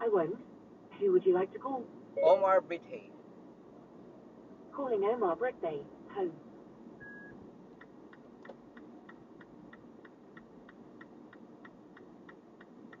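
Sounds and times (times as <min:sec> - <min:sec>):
road noise inside a car: 0:00.0 - 0:13.0
steady ticking: 0:07.8 - 0:13.0.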